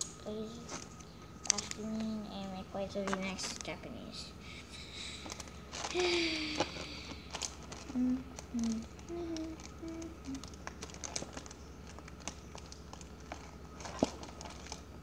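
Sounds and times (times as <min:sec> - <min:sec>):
foil card pack crinkling: 0:00.6 - 0:02.1, 0:05.0 - 0:15.0
child humming: 0:05.9 - 0:07.3, 0:07.9 - 0:10.5.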